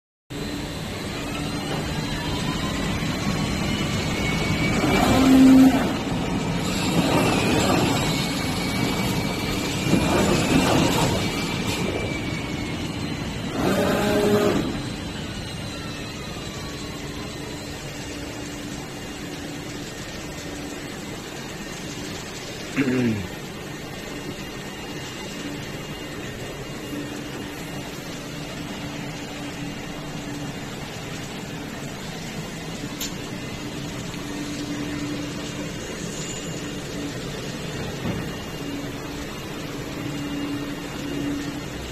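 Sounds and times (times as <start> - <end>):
vacuum blower humming: 0.4 - 8.0, 13.4 - 19.4
cutting machine whirring: 0.4 - 18.9.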